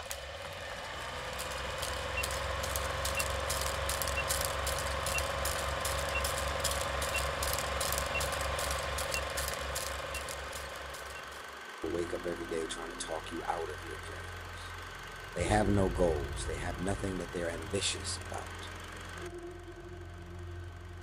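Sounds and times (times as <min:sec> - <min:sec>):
film crackle and pops: 0:00.0 - 0:11.6
film projector whirring: 0:00.0 - 0:16.2, 0:17.0 - 0:21.0
short faint beeps: 0:02.1 - 0:11.3.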